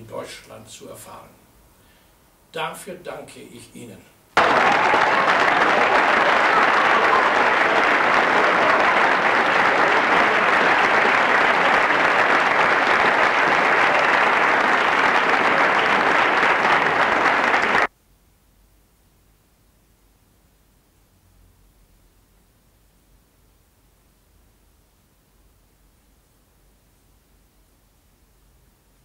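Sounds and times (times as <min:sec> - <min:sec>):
crowd clapping: 0:04.4 - 0:17.9.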